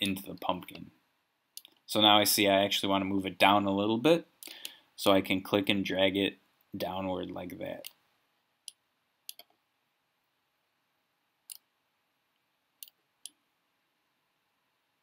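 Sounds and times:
computer mouse clicking: 8.7s - 9.6s.

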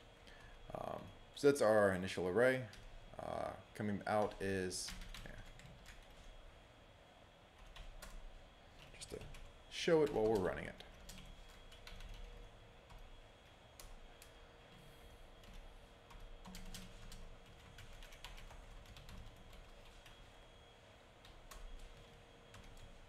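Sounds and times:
faint steady hum: 0.0s - 23.0s
keyboard typing: 4.2s - 6.3s, 8.8s - 13.1s, 15.4s - 20.4s, 21.2s - 23.0s.

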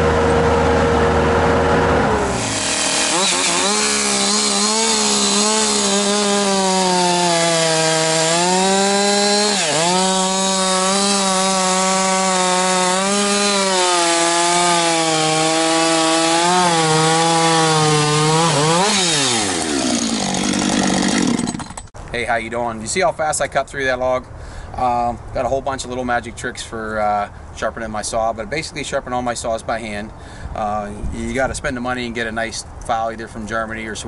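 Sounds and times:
chainsaw cutting log: 1.9s - 21.9s.

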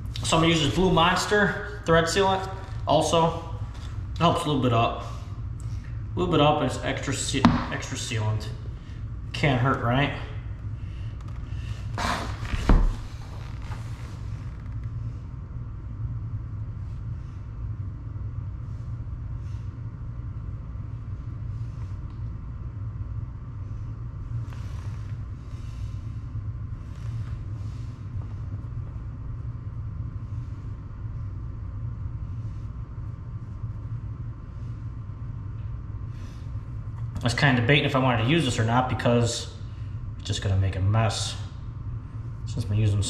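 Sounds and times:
faint hum: 0.0s - 43.0s
low rumble: 0.0s - 43.0s.

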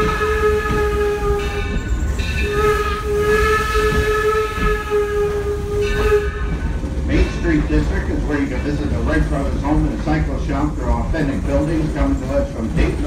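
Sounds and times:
steam locomotive whistle: 0.0s - 6.6s
train running rumble: 0.0s - 13.0s.

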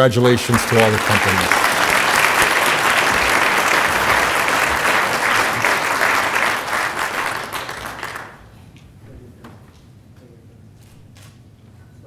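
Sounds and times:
audience applause: 0.0s - 8.6s.

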